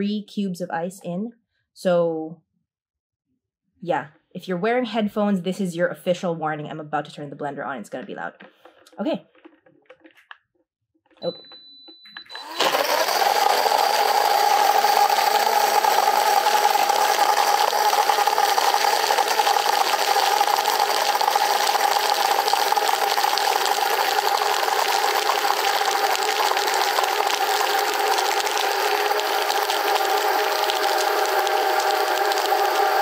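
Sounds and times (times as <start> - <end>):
blender motor whining: 12.2 - 33.0
ice cubes blending: 12.3 - 33.0.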